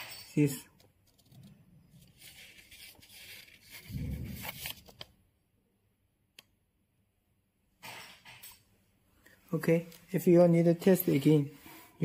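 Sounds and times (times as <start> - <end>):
paper receipt rustling: 0.8 - 5.1.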